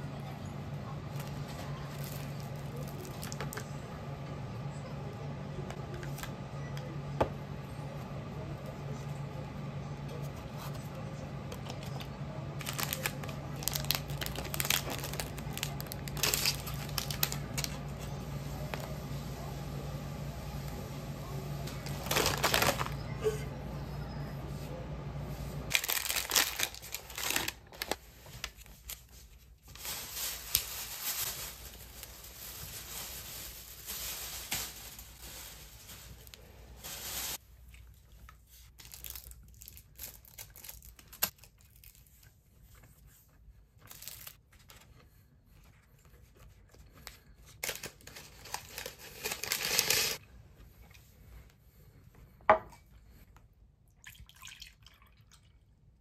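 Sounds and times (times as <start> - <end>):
food wrappers crinkling: 1.1 - 3.8, 10.2 - 19.1, 21.3 - 23.4, 25.7 - 45.0, 45.9 - 50.2.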